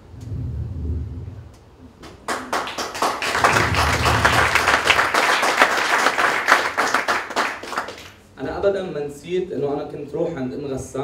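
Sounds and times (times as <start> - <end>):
audience applauding: 2.0 - 8.2.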